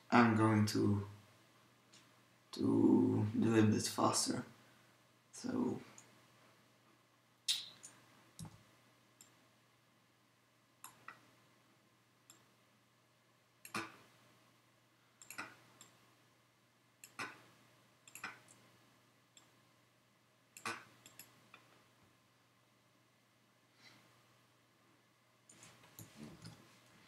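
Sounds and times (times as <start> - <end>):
mouse and keyboard clicks: 15.2 - 16.0.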